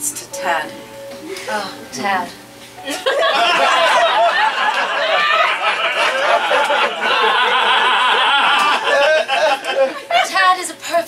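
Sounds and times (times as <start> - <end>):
audience laughing loudly: 2.9 - 10.4.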